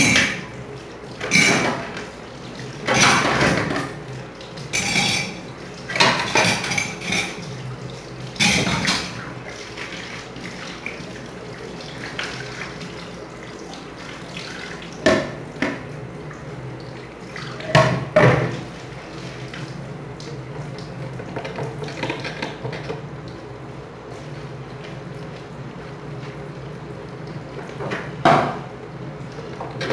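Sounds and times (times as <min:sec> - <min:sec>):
dishes clattering: 0:00.0 - 0:00.5, 0:01.2 - 0:02.0, 0:02.8 - 0:04.0, 0:04.7 - 0:07.4, 0:08.4 - 0:09.2, 0:17.6 - 0:18.6
tap water running: 0:00.0 - 0:29.9.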